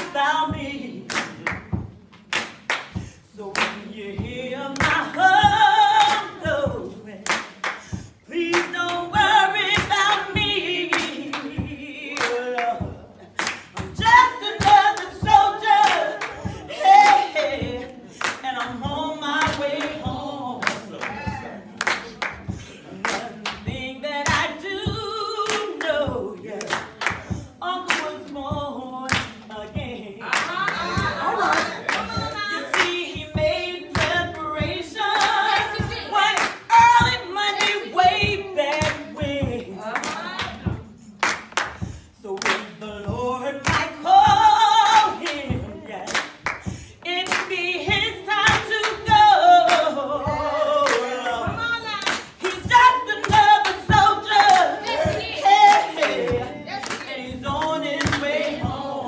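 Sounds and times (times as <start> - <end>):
hand claps keeping beat: 0.0 - 59.0
people singing: 0.0 - 59.0
sharp hand claps: 1.1 - 3.8, 41.2 - 42.7, 46.1 - 47.6.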